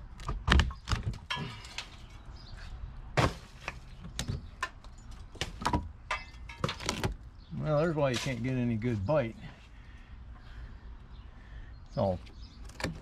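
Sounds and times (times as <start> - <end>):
wood knocking and cracking: 0.1 - 1.9, 3.2 - 7.2, 12.6 - 13.0.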